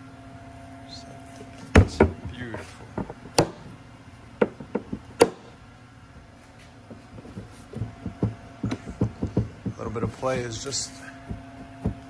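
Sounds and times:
plastic cooler knocking: 7.8 - 10.2.

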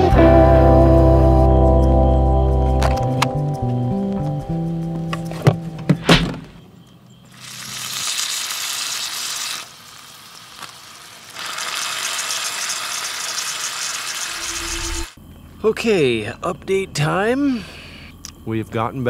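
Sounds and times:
thud: 5.4 - 6.6
meat sizzling in a frying pan: 7.3 - 15.1.

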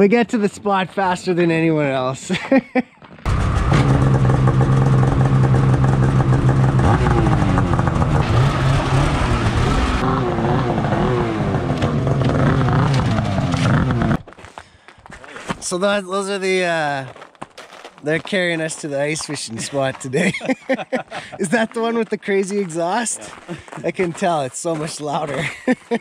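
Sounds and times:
snowmobile engine revving: 3.3 - 14.2.

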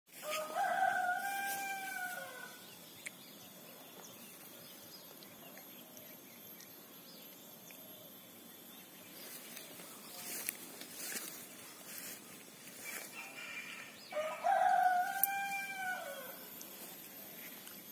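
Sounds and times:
rooster crowing: 0.1 - 2.7, 13.1 - 16.7
faint outdoor background: 0.1 - 17.9
thin high tone: 0.3 - 17.9.

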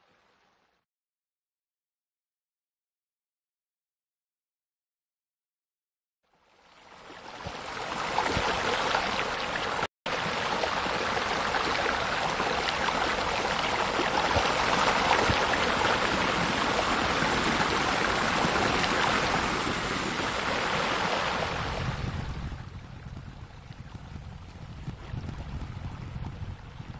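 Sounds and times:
running water rushing: 6.4 - 26.9.

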